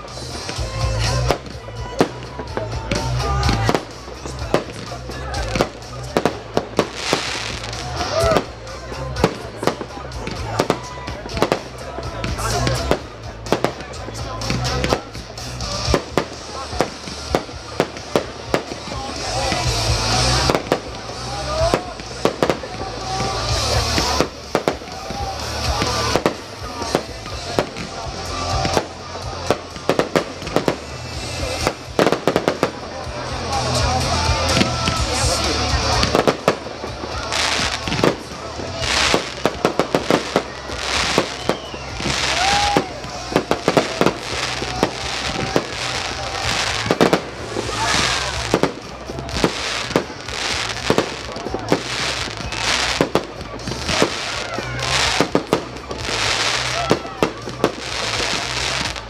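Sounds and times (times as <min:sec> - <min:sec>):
fireworks bursting: 0:00.0 - 0:59.0
fireworks hissing and crackling: 0:00.0 - 0:59.0.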